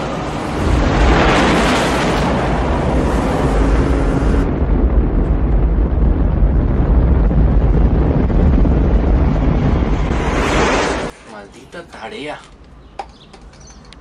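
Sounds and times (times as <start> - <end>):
explosion boom and rumble: 0.0 - 11.1.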